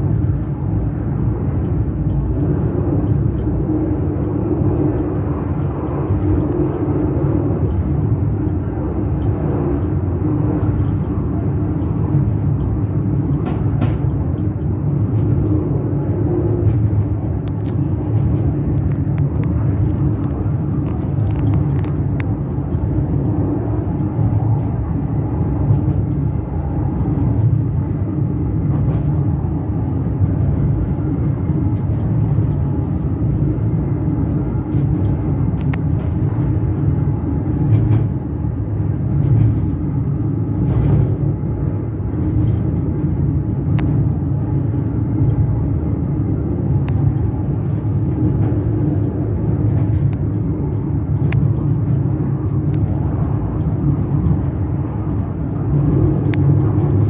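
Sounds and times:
funicular car rumbling on rails: 0.0 - 57.0.

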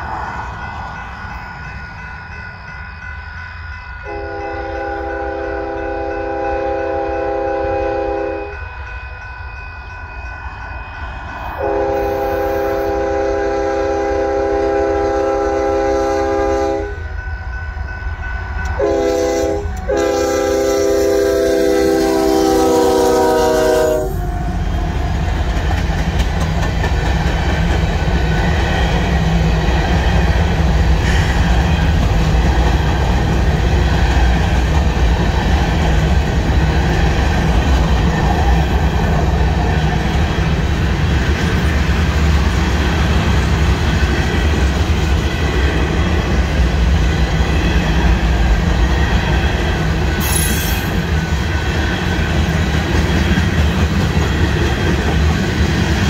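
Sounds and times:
locomotive horn: 4.0 - 8.6, 11.6 - 17.2, 18.6 - 24.4
train wheels clattering on rail: 18.5 - 56.0.

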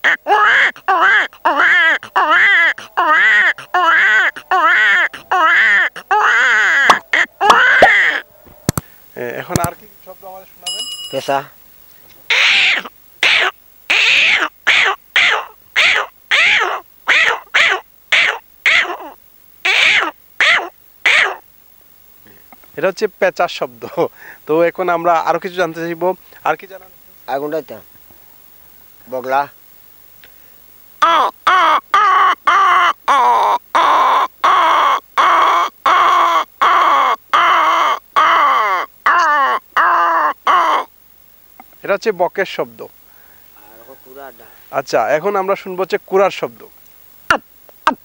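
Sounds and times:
man imitating owl calls: 0.0 - 9.7, 12.2 - 21.4, 31.0 - 40.9, 47.3 - 48.0.

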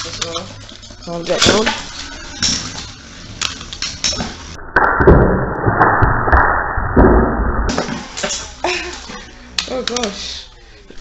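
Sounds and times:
spinning tops clinking and scraping: 0.0 - 4.6.

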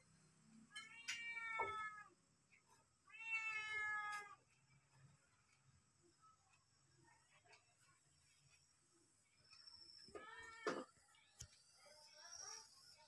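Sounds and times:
cat meowing: 0.8 - 2.1, 3.1 - 4.4.

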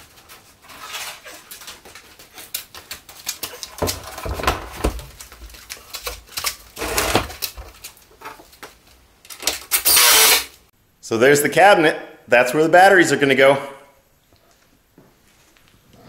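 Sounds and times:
wooden cabinet knocking and scraping: 3.7 - 5.2.

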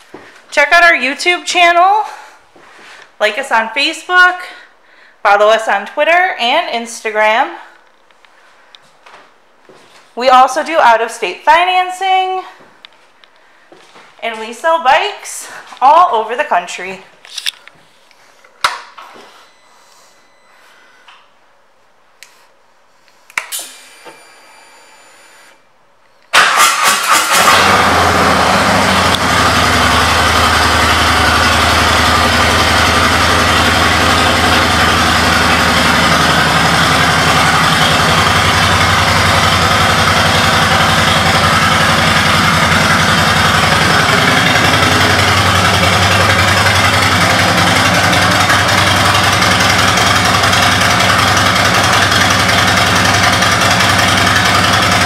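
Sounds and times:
motorcycle engine starting and idling: 26.3 - 55.0.

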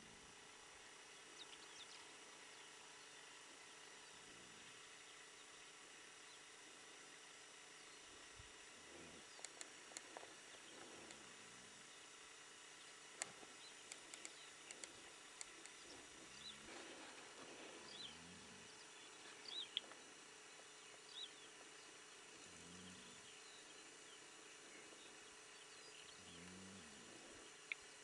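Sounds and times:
sharp clicks: 9.4 - 10.3, 13.1 - 15.9.

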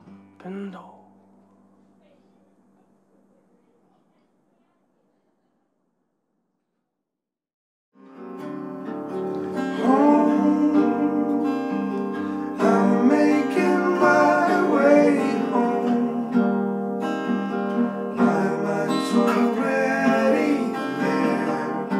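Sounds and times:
acoustic guitar: 0.0 - 3.0, 8.0 - 21.9
person singing: 9.7 - 16.4, 18.1 - 21.9.

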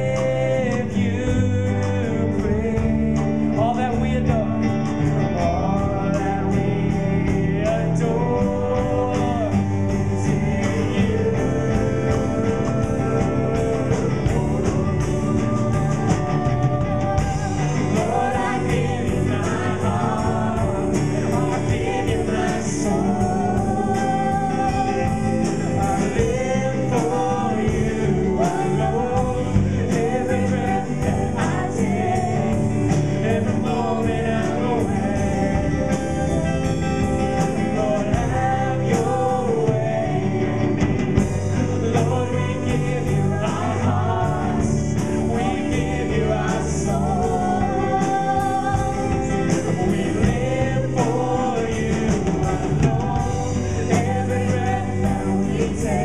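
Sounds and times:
drum kit beat: 0.0 - 56.0
electric guitar: 0.0 - 56.0
keyboard: 0.0 - 56.0
woman singing into microphone: 41.9 - 56.0.

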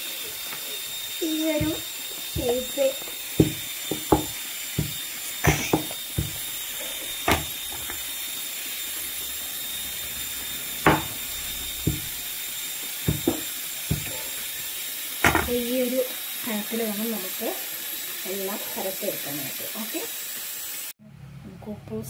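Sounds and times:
steady hiss: 0.0 - 20.9
rolling pin rolling dough: 1.2 - 8.2, 10.8 - 14.6, 15.2 - 15.7
knocks on wooden board: 1.6 - 2.7, 3.4 - 6.5, 7.2 - 8.0, 10.8 - 11.2, 11.8 - 12.2, 13.1 - 14.2, 15.2 - 15.6.

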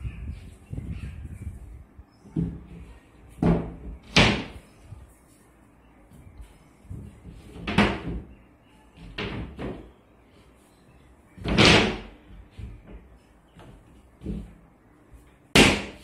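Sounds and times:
hollow wooden knocks and thuds: 2.3 - 4.6, 6.9 - 8.3.

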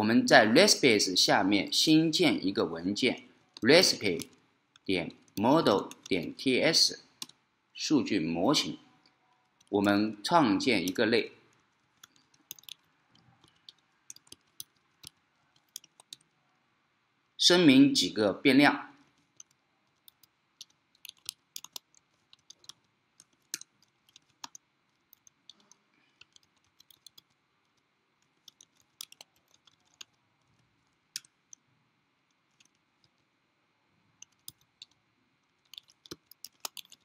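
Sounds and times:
computer keyboard typing: 3.5 - 6.4, 10.8 - 16.4, 19.0 - 31.6, 32.3 - 33.2, 34.2 - 37.0.

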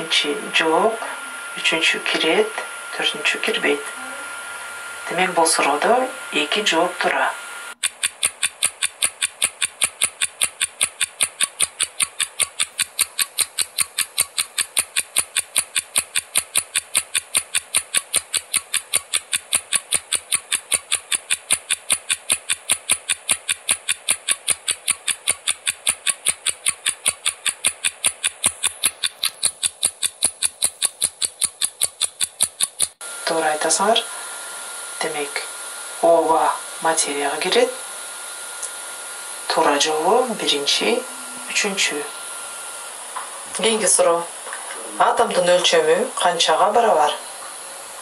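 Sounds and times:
clock ticking: 7.8 - 33.0.

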